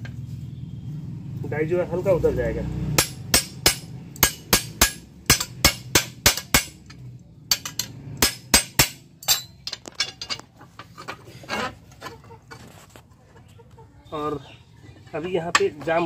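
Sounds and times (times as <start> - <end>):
metal-on-metal strikes: 2.9 - 10.4.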